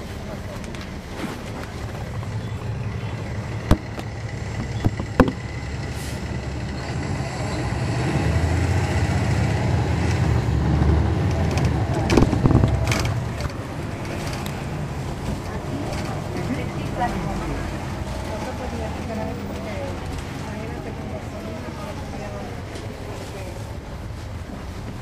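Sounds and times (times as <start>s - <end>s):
bus diesel engine rumble: 0.0s - 25.0s
sharp knock: 3.7s - 4.1s.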